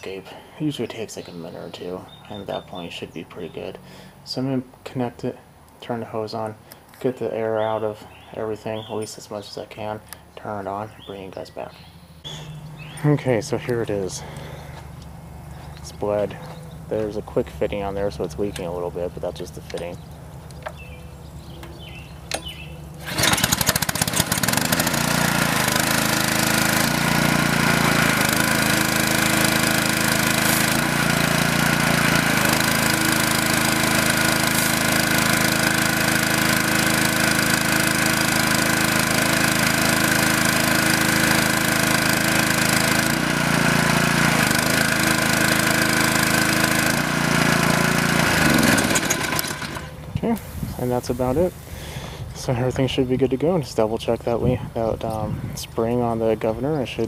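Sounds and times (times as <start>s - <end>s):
small engine running: 11.9s - 50.0s
pressure washer wand spraying: 23.0s - 50.6s.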